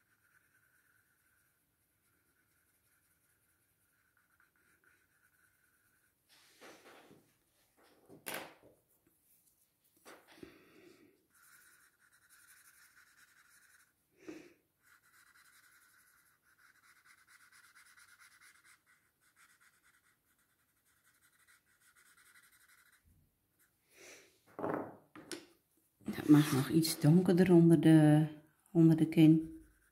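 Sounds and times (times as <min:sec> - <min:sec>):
pencil shading on paper: 0:00.0 - 0:06.6, 0:11.3 - 0:14.0, 0:14.8 - 0:23.0, 0:28.8 - 0:29.9.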